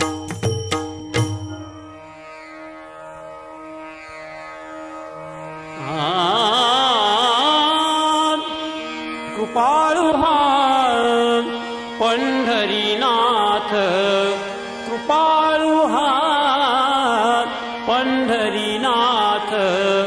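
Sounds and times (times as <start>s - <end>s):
person singing ornamented phrases: 5.8s - 20.0s.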